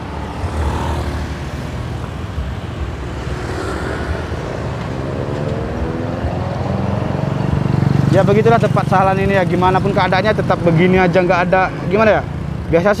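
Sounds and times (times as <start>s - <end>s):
engine accelerating: 0.0s - 10.0s
minivan engine running: 0.0s - 10.8s
motorcycle engines running: 0.0s - 13.0s.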